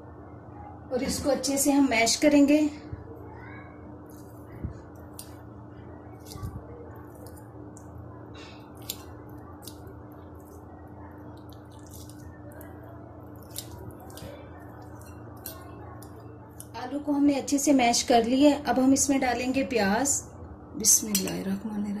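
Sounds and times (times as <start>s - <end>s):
steady low hum: 0.0s - 22.0s
potatoes squishing: 4.1s - 16.8s.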